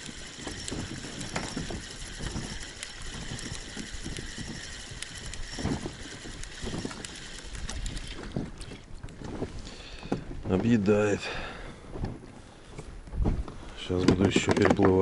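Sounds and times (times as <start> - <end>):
wind buffeting microphone: 0.0 - 15.0
small knocks and rustles: 7.7 - 11.0, 11.9 - 15.0.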